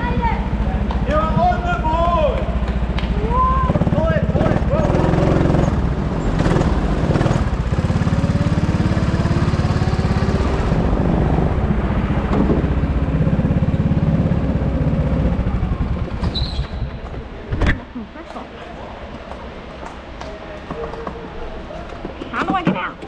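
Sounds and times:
go-kart engine revving: 0:00.0 - 0:17.4.

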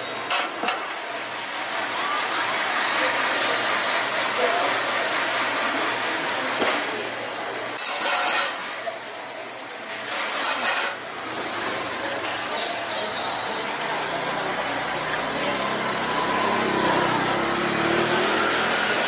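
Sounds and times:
faint voices: 0:00.0 - 0:19.0
patties sizzling on a griddle: 0:00.0 - 0:19.0
metal spatula scraping griddle: 0:00.2 - 0:00.9, 0:07.8 - 0:08.7, 0:10.0 - 0:11.5.

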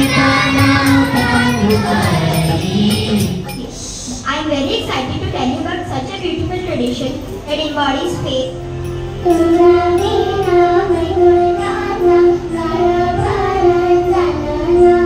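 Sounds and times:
boy singing into a microphone: 0:09.3 - 0:15.0.

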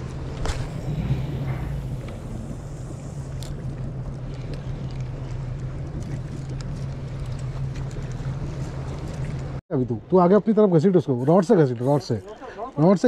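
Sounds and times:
boat engine humming: 0:00.0 - 0:09.6.

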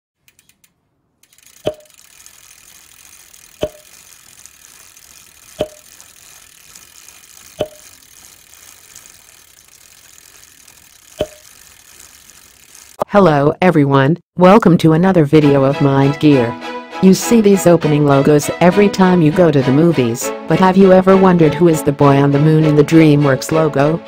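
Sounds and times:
sharp mechanical clicks: 0:00.2 - 0:13.0.

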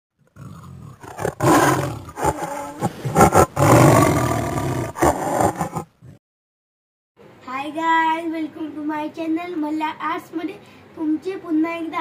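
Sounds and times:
tiger growling and roaring: 0:00.2 - 0:06.2.

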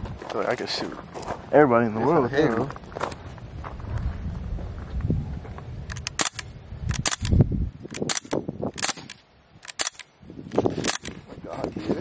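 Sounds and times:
bb rifle snapping shots: 0:05.9 - 0:10.1, 0:10.8 - 0:11.2.

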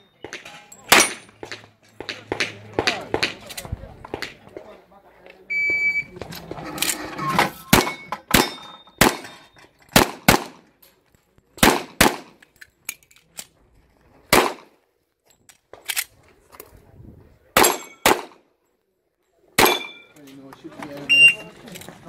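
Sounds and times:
pistol shots: 0:00.2 - 0:03.5, 0:07.7 - 0:09.3, 0:10.0 - 0:10.6, 0:11.6 - 0:12.4, 0:14.3 - 0:14.8, 0:17.6 - 0:18.4, 0:19.6 - 0:20.1.

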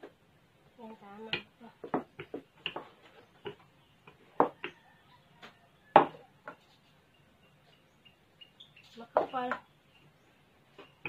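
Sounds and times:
rolling pin knocking on wooden table: 0:04.4 - 0:04.7.

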